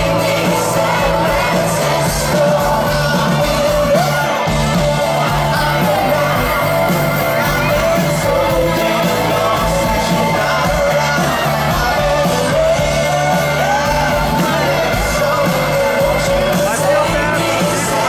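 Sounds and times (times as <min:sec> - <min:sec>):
crowd shouting and cheering: 0:00.0 - 0:18.0
live pop-rock band: 0:00.0 - 0:18.0
man singing lead vocal: 0:00.0 - 0:18.0.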